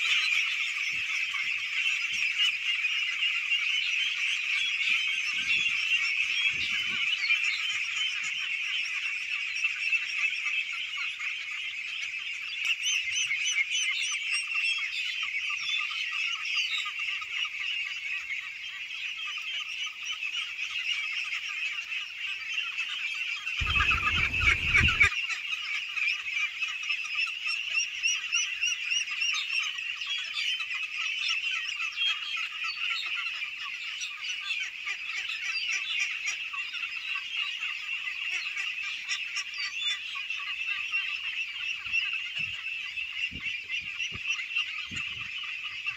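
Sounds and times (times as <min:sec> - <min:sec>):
ducklings calling: 0:23.6 - 0:25.1
low rumble: 0:23.6 - 0:25.1.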